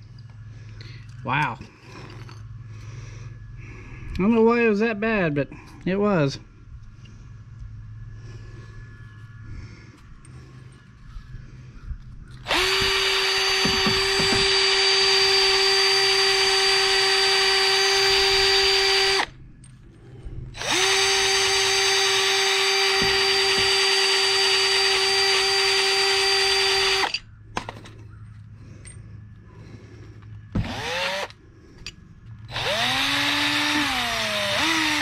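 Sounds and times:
electric power tool whining: 0:12.3 - 0:19.4, 0:20.6 - 0:27.8, 0:30.5 - 0:31.4, 0:32.2 - 0:35.0.

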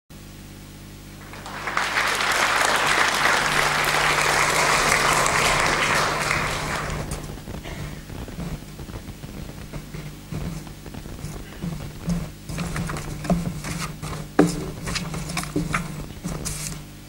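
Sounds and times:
audience applauding: 0:01.2 - 0:12.0.

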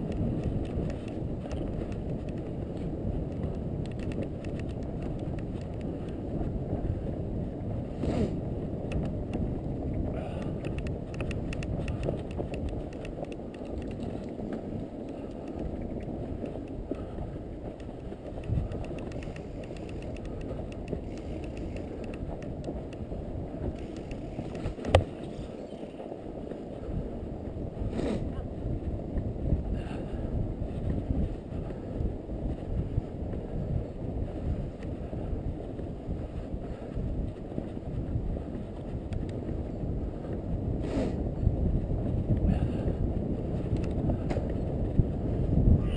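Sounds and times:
small clicks and crackles: 0:00.0 - 0:07.1, 0:08.8 - 0:27.1, 0:34.3 - 0:40.4, 0:43.6 - 0:44.6
bike tyres rumbling on snow: 0:00.0 - 0:45.9
wind on microphone: 0:00.0 - 0:45.9.

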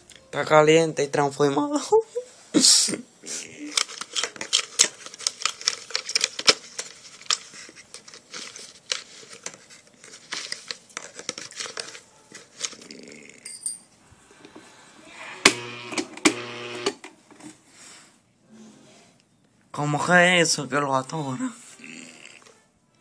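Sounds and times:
blender motor humming: 0:15.4 - 0:17.0.

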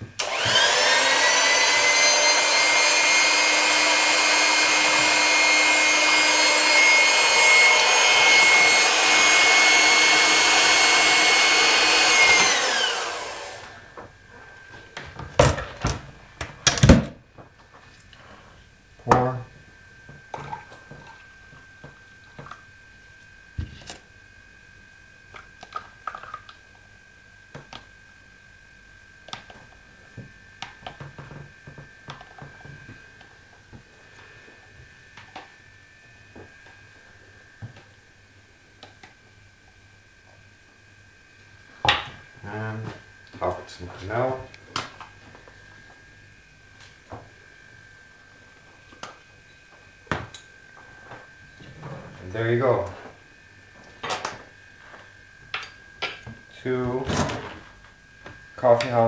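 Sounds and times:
electric hand mixer motor: 0:00.2 - 0:13.9.

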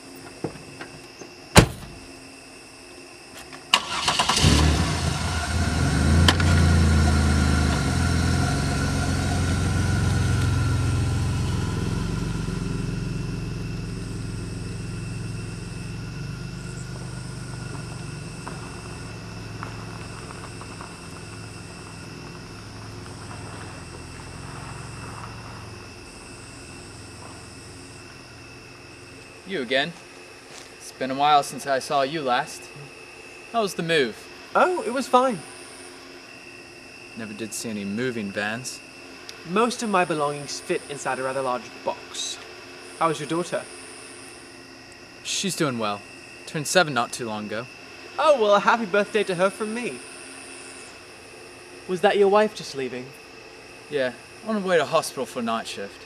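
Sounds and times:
car door shutting: 0:01.5 - 0:02.1
car engine starting and running: 0:01.6 - 0:02.1, 0:03.8 - 0:29.2.

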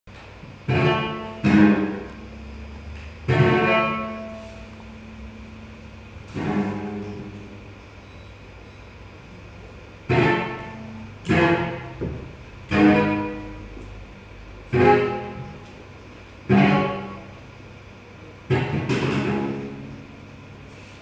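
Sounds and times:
plucked string instrument: 0:00.6 - 0:02.2, 0:03.1 - 0:05.3, 0:06.2 - 0:07.6, 0:10.0 - 0:14.0, 0:14.6 - 0:17.5, 0:18.4 - 0:20.1.

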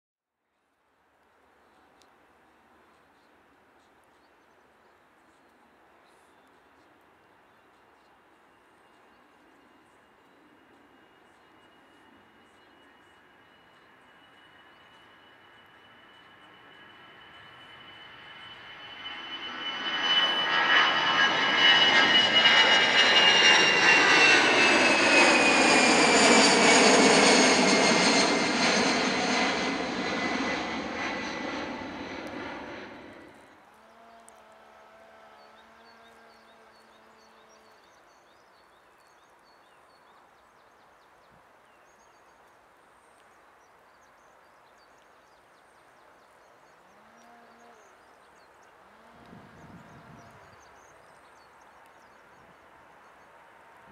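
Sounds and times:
jet aircraft passing close: 0:09.2 - 0:33.6, 0:48.3 - 0:53.9
distant jet hum: 0:10.4 - 0:33.5.

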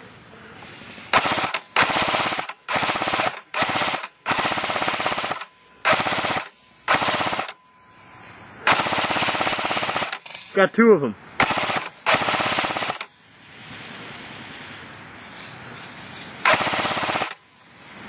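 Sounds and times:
airsoft machine gun firing bursts: 0:01.1 - 0:07.6, 0:08.7 - 0:10.3, 0:11.4 - 0:13.1, 0:16.4 - 0:17.4.

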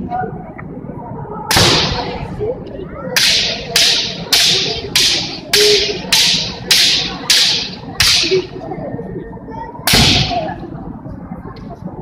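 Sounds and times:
bamboo swords striking: 0:01.5 - 0:02.2, 0:03.2 - 0:08.6, 0:09.9 - 0:10.6.

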